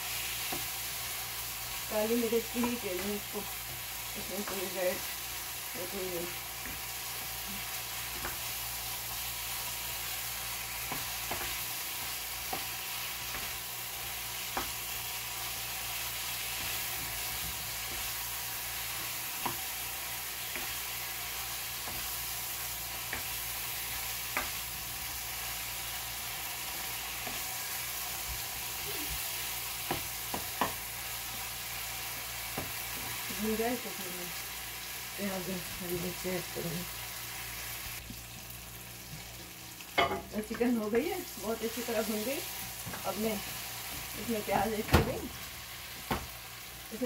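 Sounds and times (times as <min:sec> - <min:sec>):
chicken sizzling in a wok: 0:00.0 - 0:47.0
spatula tapping pan: 0:10.8 - 0:13.7, 0:20.4 - 0:22.2, 0:22.8 - 0:24.6, 0:29.8 - 0:30.8.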